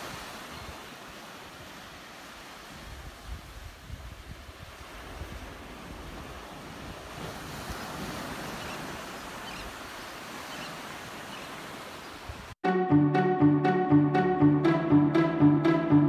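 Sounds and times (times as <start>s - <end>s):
waves washing on a beach: 0.0s - 12.6s
wind on the microphone: 2.7s - 9.1s.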